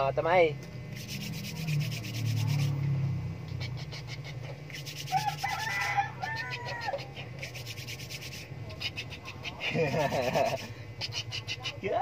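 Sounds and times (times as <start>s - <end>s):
hands rubbing oil on skin: 1.0s - 2.8s, 3.6s - 11.7s
high vocal calls: 3.4s - 12.0s.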